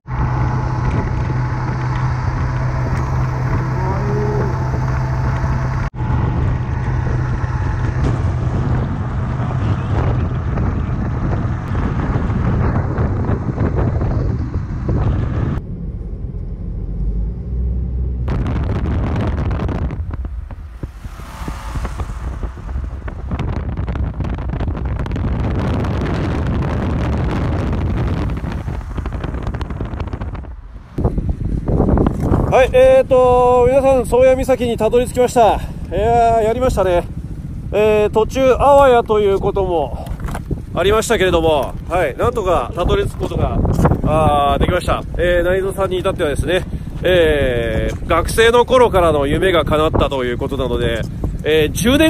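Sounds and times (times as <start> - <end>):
motorcycle engine running: 0.0 - 17.2
wind rushing over microphone: 0.0 - 52.0.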